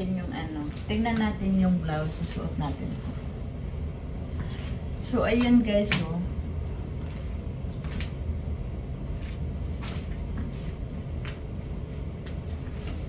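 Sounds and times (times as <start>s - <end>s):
low room hum: 0.0s - 13.0s
clothing swishes: 8.9s - 13.0s.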